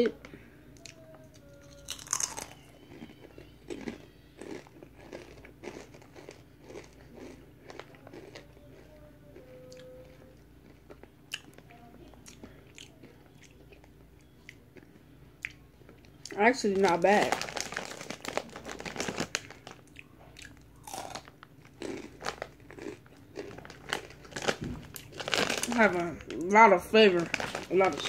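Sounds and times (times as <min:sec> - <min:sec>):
chip crunching in mouth: 0:01.6 - 0:08.9, 0:16.7 - 0:26.5, 0:27.1 - 0:28.0.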